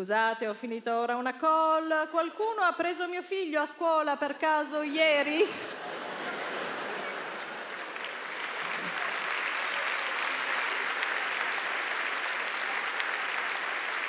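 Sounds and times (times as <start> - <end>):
audience applauding: 5.7 - 14.0.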